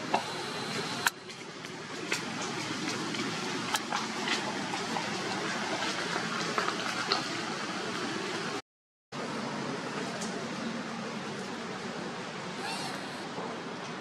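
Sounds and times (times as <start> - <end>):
outdoor background hiss: 9.2 - 14.0.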